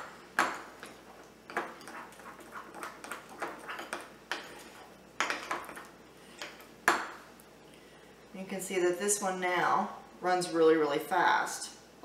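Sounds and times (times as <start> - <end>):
spoon scraping ceramic bowl: 1.5 - 5.7.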